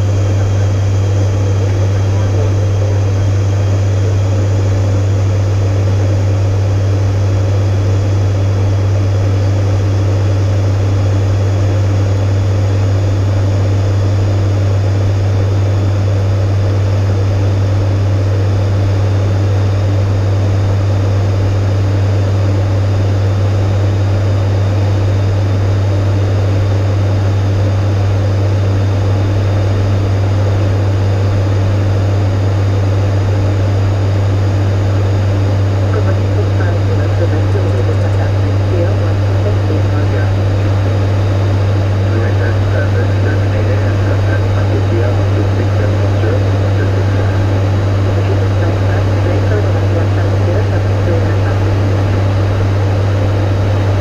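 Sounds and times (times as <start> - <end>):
propeller engines droning: 0.0 - 54.0.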